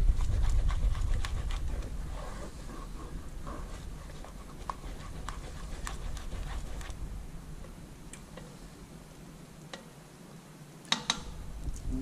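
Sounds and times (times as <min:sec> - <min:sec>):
spoon stirring gravy: 0:00.2 - 0:07.0.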